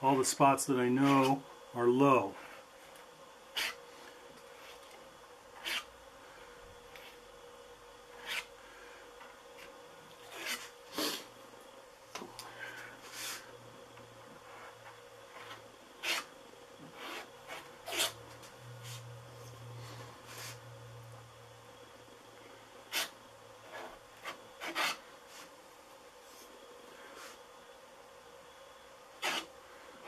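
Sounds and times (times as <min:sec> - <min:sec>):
spatula scraping filler: 0:10.3 - 0:11.2, 0:29.2 - 0:29.5.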